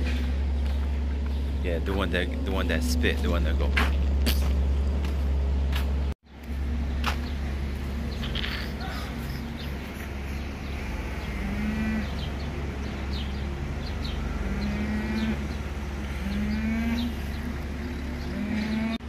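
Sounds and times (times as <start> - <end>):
steady low hum: 0.0 - 19.0
cows mooing: 1.9 - 3.6, 8.2 - 19.0.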